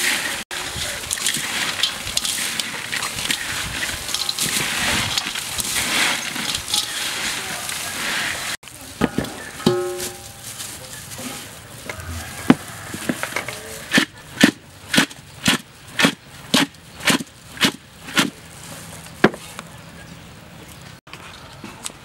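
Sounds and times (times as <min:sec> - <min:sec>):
metal basin knocking and rattling: 0:01.1 - 0:07.2, 0:09.0 - 0:10.4.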